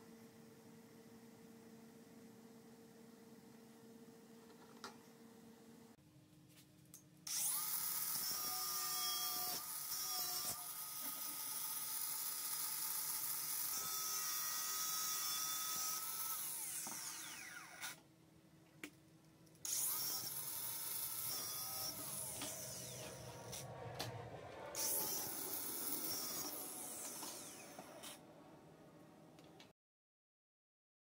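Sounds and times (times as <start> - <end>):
angle grinder cutting steel wire: 7.3 - 18.0, 19.6 - 28.2.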